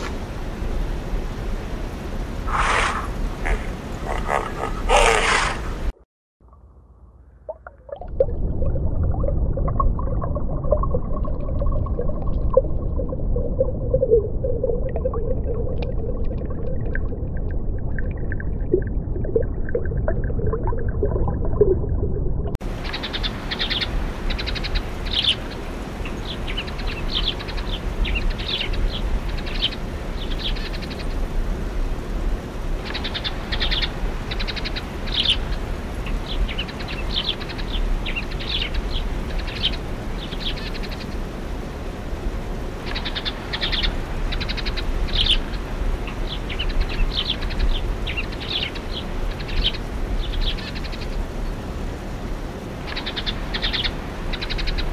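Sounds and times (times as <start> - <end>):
low background rumble: 0.2 - 32.8
sparrows chirping: 2.5 - 5.8, 22.8 - 31.0, 32.9 - 35.5, 36.2 - 41.2, 42.9 - 45.5, 52.9 - 54.9.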